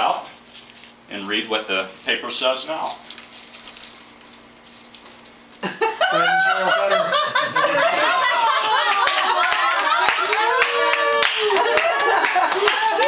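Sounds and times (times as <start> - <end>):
audience laughing: 5.6 - 13.0.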